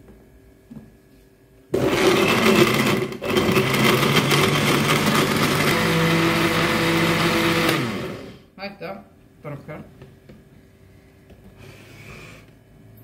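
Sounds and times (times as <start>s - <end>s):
blender motor running: 1.8s - 8.4s.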